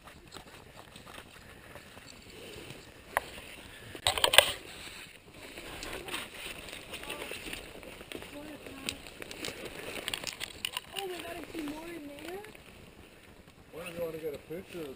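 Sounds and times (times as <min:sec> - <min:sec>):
brushing and crackling of leaves: 0:00.0 - 0:14.9
rustling through leafy undergrowth: 0:00.0 - 0:14.9.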